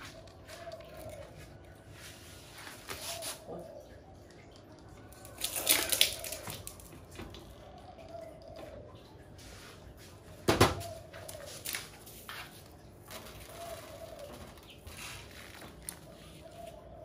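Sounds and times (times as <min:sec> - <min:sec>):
bird calling: 0:00.0 - 0:09.2, 0:10.5 - 0:12.4, 0:13.1 - 0:17.0.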